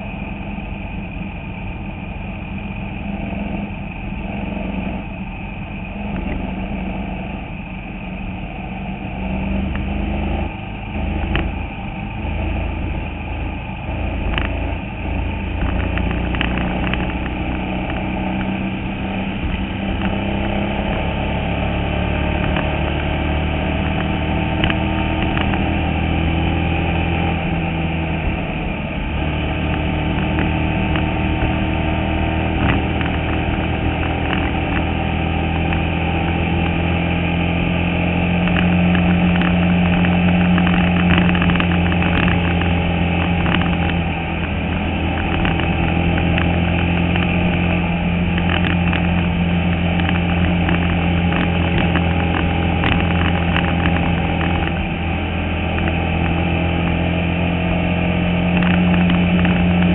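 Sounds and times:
race car engine running hard: 0:00.0 - 0:59.9
sharp clicks: 0:15.6 - 0:18.5, 0:23.8 - 0:25.7, 0:32.6 - 0:34.9, 0:38.4 - 0:54.9, 0:58.5 - 0:59.9.

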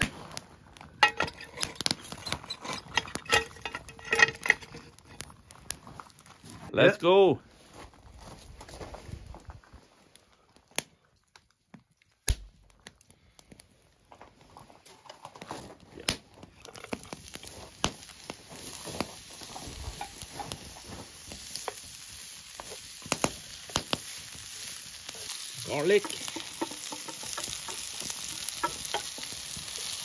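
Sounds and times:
food sizzling in a pan: 0:16.8 - 0:30.0.

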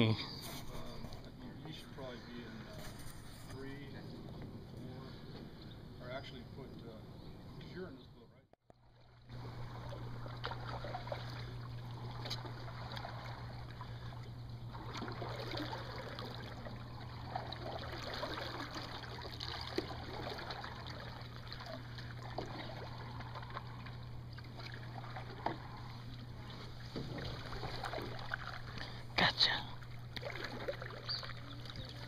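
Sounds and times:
steady low hum: 0:00.0 - 0:32.0
water lapping against hull: 0:00.0 - 0:32.0
paddles dipping in water: 0:09.2 - 0:32.0
small splashes and knocks: 0:10.2 - 0:11.6, 0:12.2 - 0:29.0, 0:29.8 - 0:32.0.

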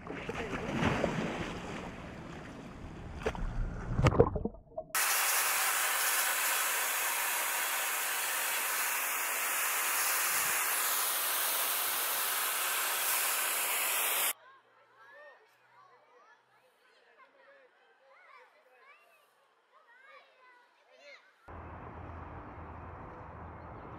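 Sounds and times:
water sloshing and splashing: 0:00.0 - 0:05.0
water jet spraying: 0:05.0 - 0:14.3.

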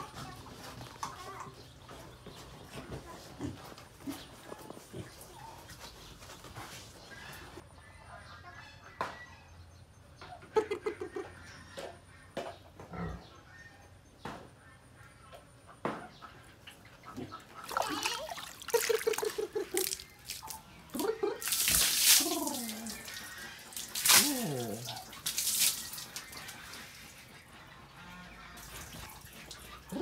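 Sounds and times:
pig grunting: 0:12.9 - 0:13.3
hose water spraying and splashing: 0:17.6 - 0:27.5, 0:28.5 - 0:30.0
pig squealing: 0:19.8 - 0:26.9.

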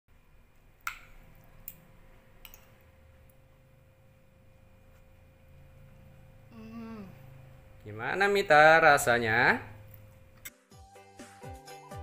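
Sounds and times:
faint low hum: 0:00.1 - 0:10.5
spoon clicking against bowl: 0:02.4 - 0:02.7.

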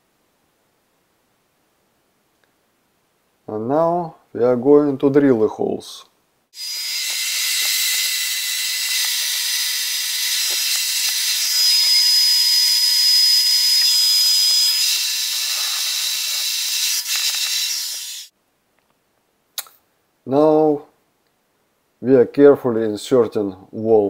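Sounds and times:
electric drill drilling into wall: 0:06.6 - 0:18.3.

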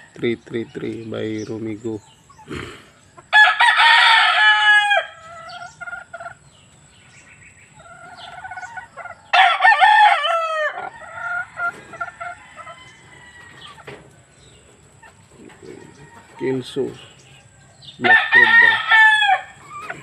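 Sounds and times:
roosters crowing: 0:00.0 - 0:20.0.

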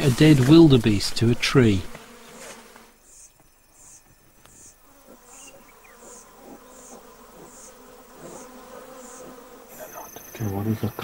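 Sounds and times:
insect chirping: 0:00.0 - 0:11.0.

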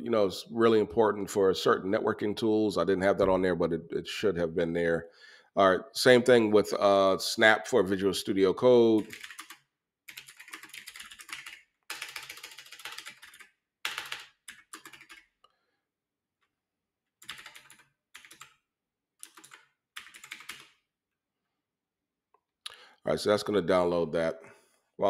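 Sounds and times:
typing on computer keyboard: 0:09.0 - 0:15.4, 0:17.2 - 0:18.6, 0:19.2 - 0:20.8.

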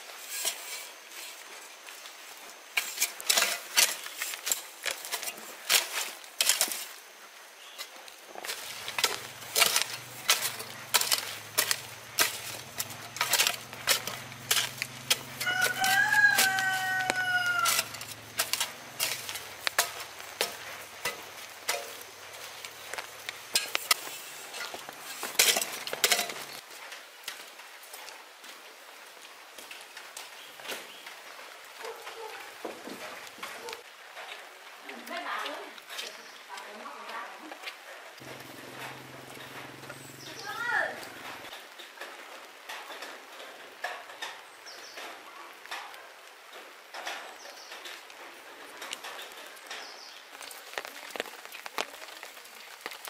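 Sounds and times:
rooster crowing: 0:15.2 - 0:18.2.

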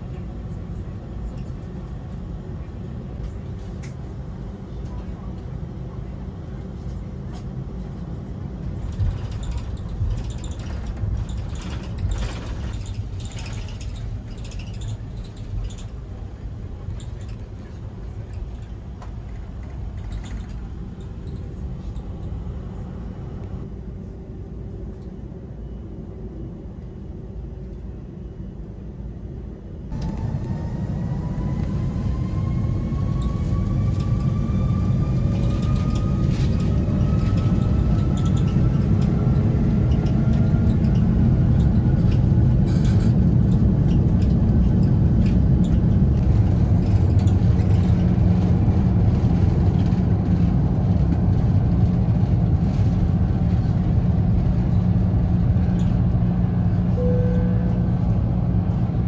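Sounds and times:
aircraft cabin rumble: 0:00.0 - 0:59.0
jet engines whining: 0:29.9 - 0:42.5.

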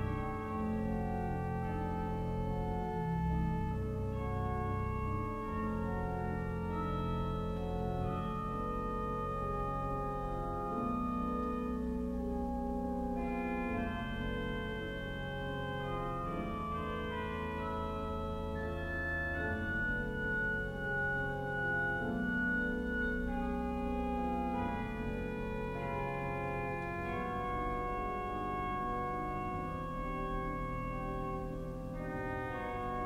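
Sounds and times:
pipe organ playing: 0:00.0 - 0:33.0.

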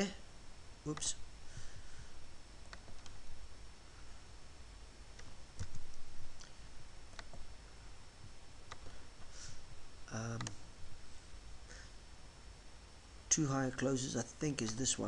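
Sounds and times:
faint steady hum: 0:00.0 - 0:15.0
computer mouse clicks: 0:02.6 - 0:03.3, 0:05.1 - 0:07.4, 0:08.7 - 0:08.9, 0:10.3 - 0:10.6, 0:14.6 - 0:14.9.

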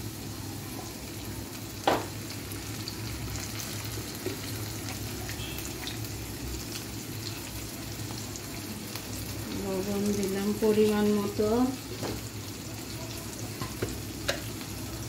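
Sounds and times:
onions sizzling in oil: 0:00.0 - 0:15.0.

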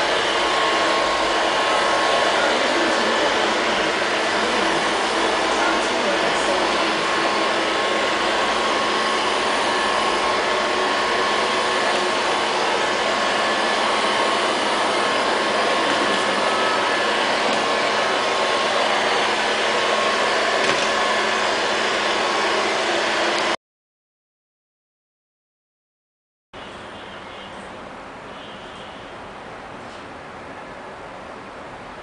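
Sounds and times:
robot vacuum cleaner whirring: 0:00.0 - 0:23.6.

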